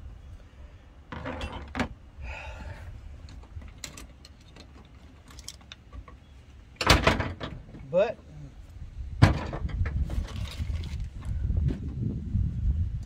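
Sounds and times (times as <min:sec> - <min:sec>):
wind rumble on microphone: 0:08.4 - 0:13.0.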